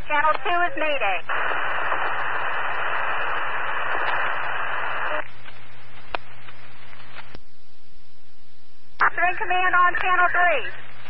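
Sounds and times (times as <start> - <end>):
radio static hiss: 0.0 - 7.5, 8.8 - 11.0
radio clicks: 0.1 - 7.5, 8.9 - 11.0.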